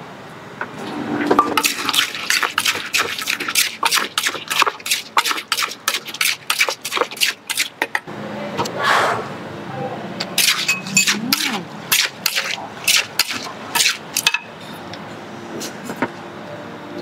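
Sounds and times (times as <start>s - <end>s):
pestle pounding wet ingredients: 1.4s - 8.1s, 10.4s - 14.4s.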